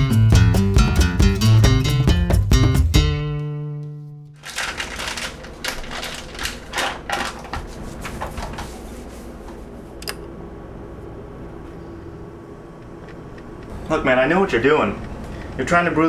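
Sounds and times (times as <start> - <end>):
low room hum: 4.4 - 16.0.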